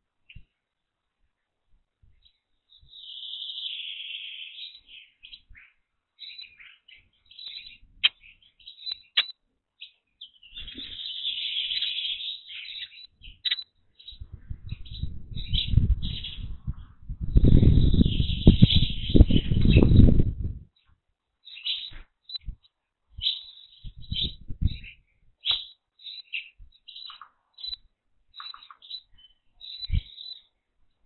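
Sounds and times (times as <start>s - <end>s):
songbirds chirping: 0.0s - 31.0s.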